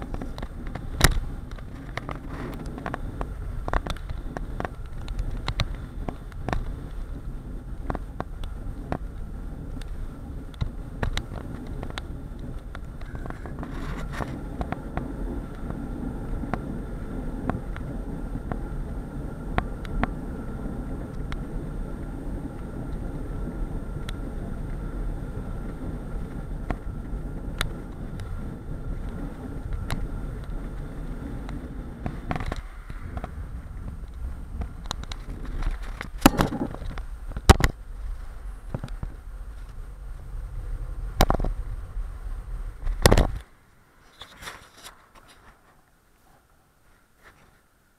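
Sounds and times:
bicycle clicks and rattles: 0.0s - 39.8s
road and wind rumble: 0.0s - 47.9s.

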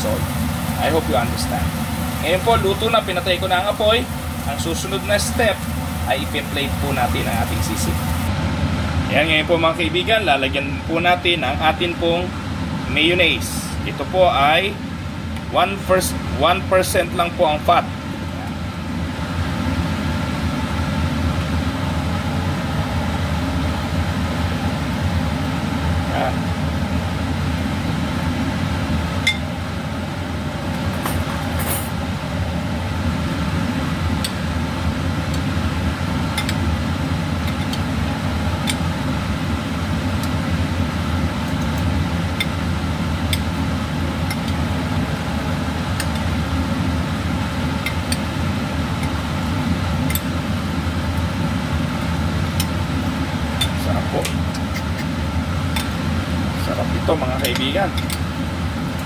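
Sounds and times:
low droning hum: 0.0s - 9.2s.

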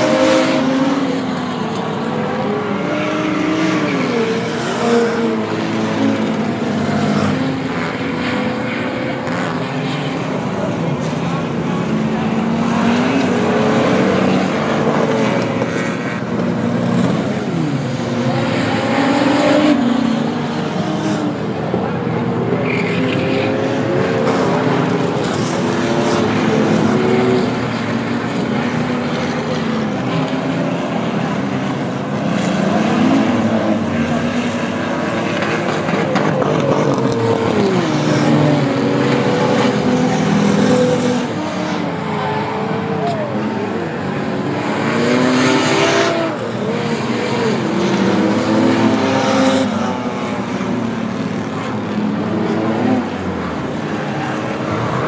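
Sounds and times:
race car engines revving: 0.0s - 55.0s.

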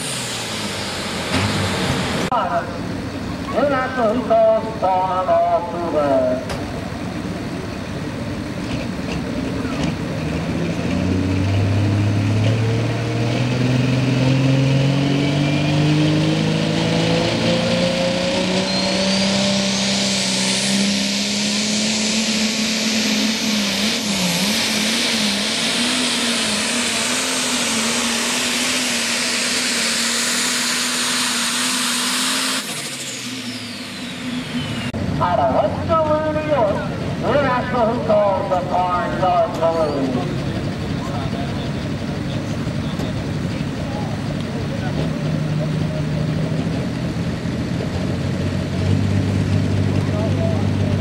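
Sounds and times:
tractor engine under full load: 0.0s - 51.0s
high whine: 13.8s - 46.4s.

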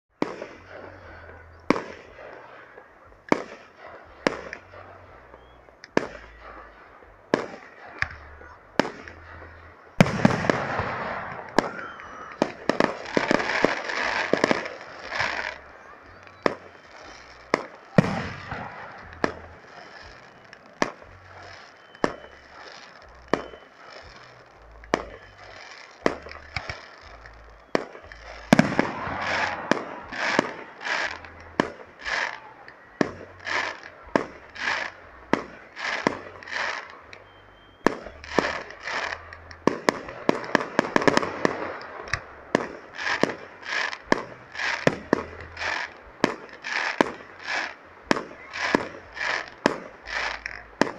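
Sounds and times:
crackling firework bursts: 0.1s - 50.9s.

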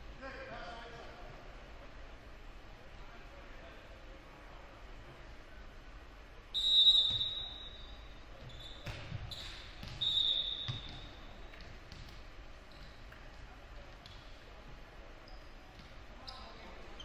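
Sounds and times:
referee's whistle blasts: 6.5s - 11.2s.

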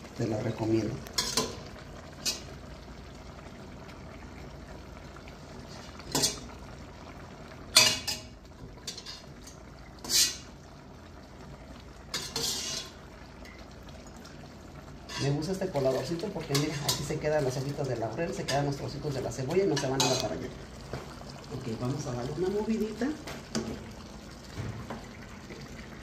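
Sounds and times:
stew hissing on the stove: 0.0s - 26.0s
metal utensils clinking on a pot: 1.2s - 2.5s, 6.1s - 6.5s, 7.7s - 10.4s, 12.1s - 13.6s, 15.1s - 17.8s, 19.6s - 20.4s.

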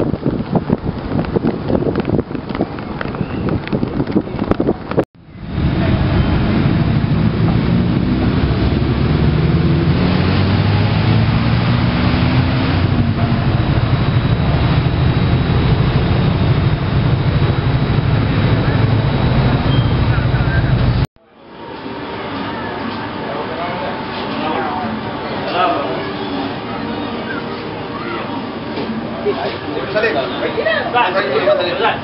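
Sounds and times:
wind buffeting microphone: 0.0s - 21.1s
vehicles passing: 0.0s - 32.0s.

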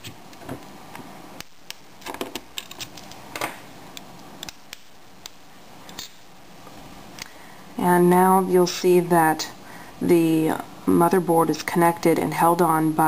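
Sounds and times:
small clicks and scrapes: 2.0s - 3.2s.

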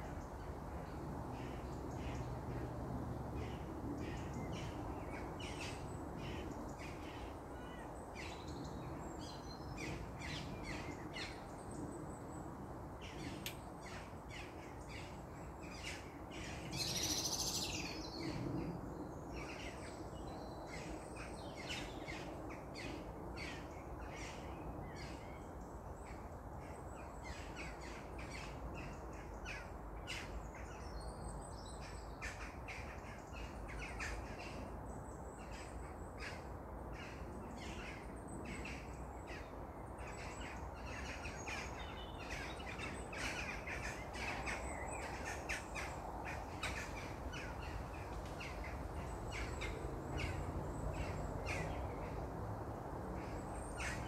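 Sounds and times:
wild birds chirping: 0.0s - 54.0s.

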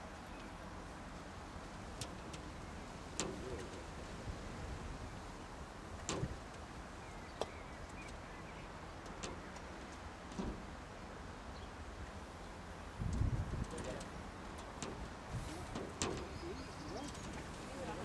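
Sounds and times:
outdoor background rumble: 0.0s - 18.0s
faint knocks: 13.1s - 18.0s.

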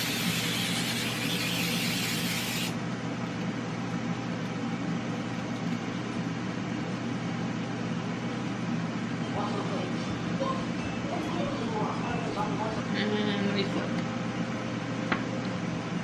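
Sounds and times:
cooking oil spray hissing: 0.0s - 2.8s
steady low hum: 0.0s - 16.0s.

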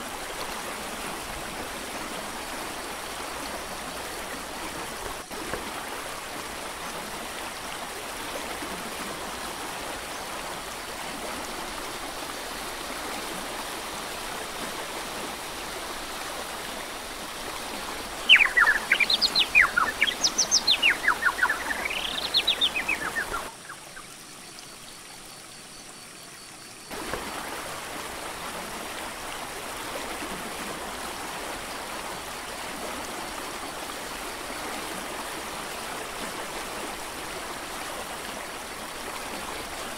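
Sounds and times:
mountain creek rushing: 0.0s - 26.2s, 26.8s - 39.9s
bird singing rapid notes: 18.3s - 23.5s.

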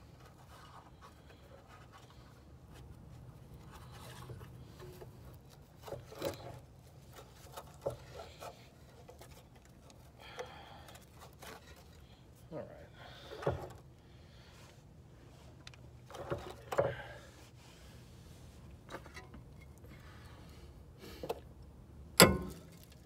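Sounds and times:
scraping and rubbing on metal: 0.0s - 10.2s, 11.0s - 12.4s
low steady hum: 0.0s - 23.0s
sharp metal clicks and knocks: 22.2s - 23.0s.

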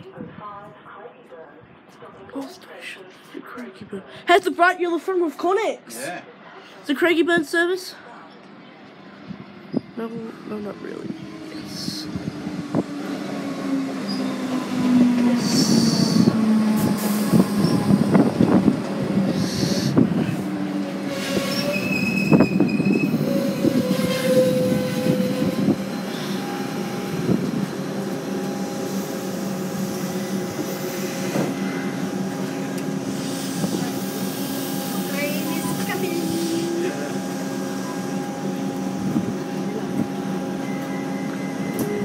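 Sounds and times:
train standing hum: 8.0s - 42.0s
train motor whine: 10.9s - 42.0s
brake and wheel squeals: 21.2s - 26.4s.

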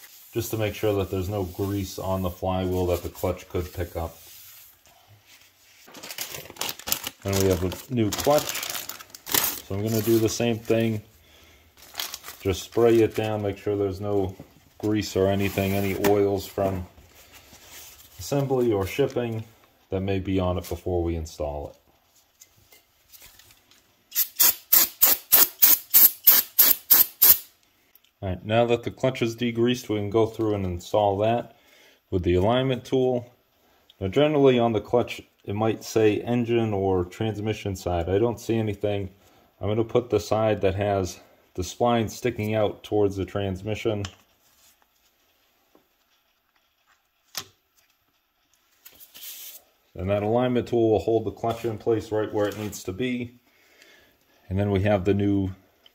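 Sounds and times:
faint handling sounds: 0.0s - 24.1s, 43.8s - 54.6s
aerosol spray hissing bursts: 24.2s - 27.5s.

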